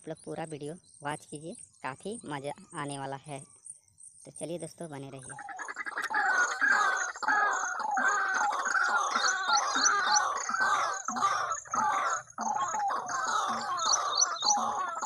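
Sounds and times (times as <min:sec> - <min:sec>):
recorded waterhen calls from speaker: 0:04.3 - 0:15.0.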